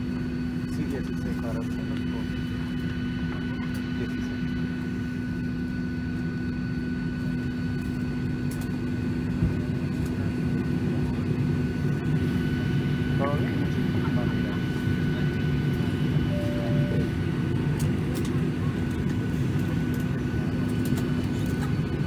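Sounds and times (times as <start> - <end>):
airplane cabin hum: 0.0 - 22.0
faint high whine: 12.3 - 17.6.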